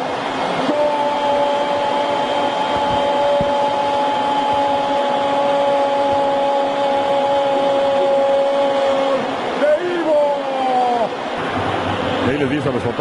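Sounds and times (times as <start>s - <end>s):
sustained two-note tone: 0.0s - 9.3s
stadium crowd cheering: 0.0s - 13.0s.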